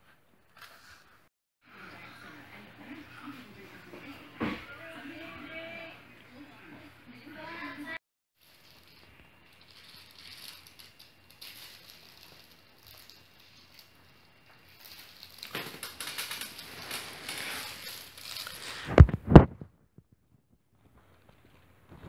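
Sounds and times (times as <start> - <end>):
bedding and toy rustling: 8.4 - 19.7.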